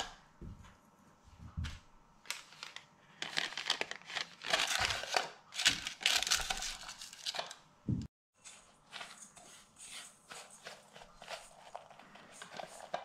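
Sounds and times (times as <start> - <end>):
parchment paper crinkling: 2.2 - 7.6, 8.8 - 13.0.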